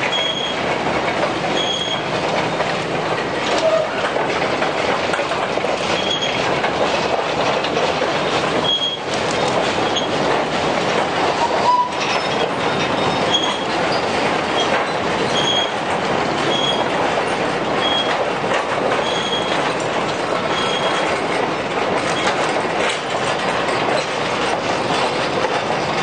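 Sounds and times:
wheels squealing: 0.0s - 0.6s, 1.4s - 4.2s, 5.8s - 6.5s, 8.2s - 10.3s, 11.3s - 17.0s, 17.8s - 18.2s, 18.9s - 19.8s, 20.4s - 21.4s
train wagons rattling: 0.0s - 26.0s.

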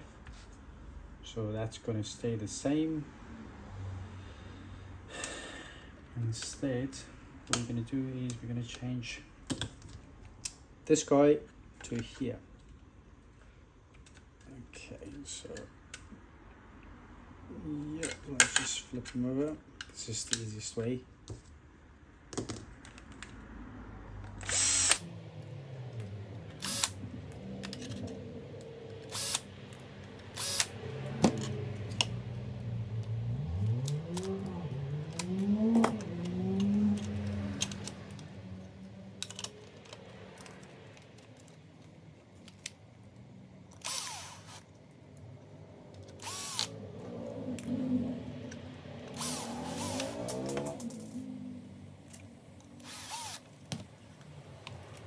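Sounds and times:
cordless drill motor running: 24.4s - 25.1s, 26.6s - 27.0s, 29.0s - 29.5s, 30.3s - 30.8s, 43.8s - 44.6s, 46.2s - 46.8s, 49.1s - 50.2s, 52.8s - 53.5s
metal parts clicking and clinking: 27.6s - 28.2s, 39.2s - 42.7s.

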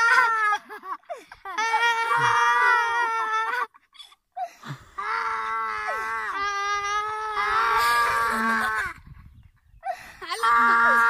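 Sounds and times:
boy laughing drawn-out: 0.0s - 4.0s, 5.9s - 9.0s.

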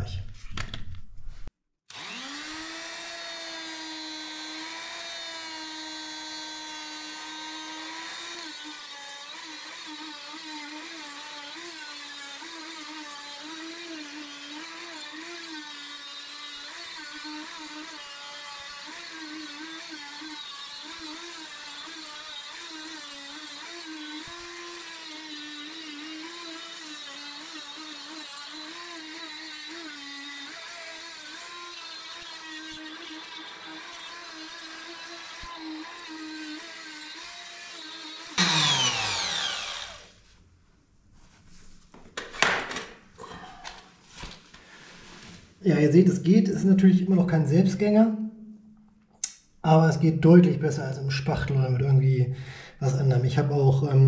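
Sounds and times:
oscillating multitool buzzing: 23.3s - 40.1s.

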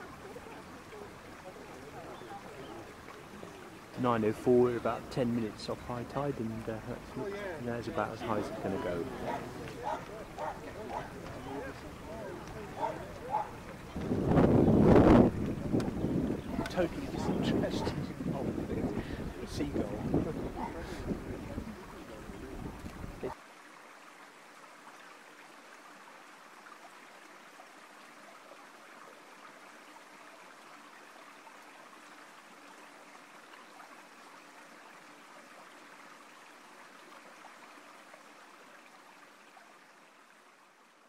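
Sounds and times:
running water rushing: 0.0s - 41.0s
wind buffeting microphone: 8.3s - 23.4s.

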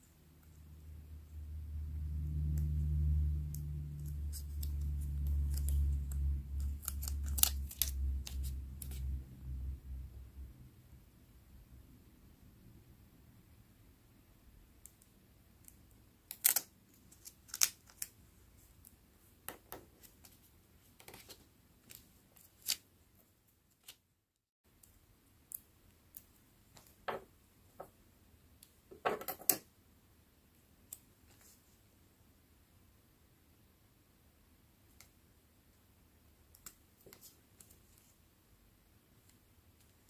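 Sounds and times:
sticker film crinkling: 3.9s - 9.2s, 16.3s - 18.2s.

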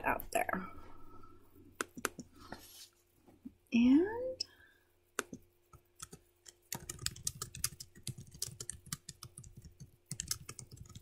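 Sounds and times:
computer keyboard typing: 1.8s - 2.3s, 5.2s - 11.0s.

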